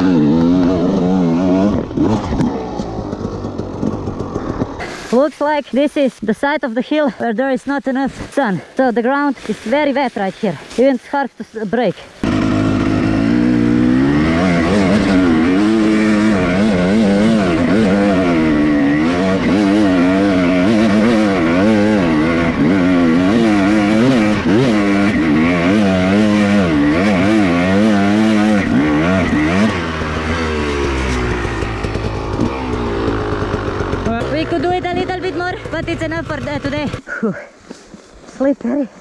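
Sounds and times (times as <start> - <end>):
dirt bike engine revving: 0.0 - 5.3, 12.2 - 37.0.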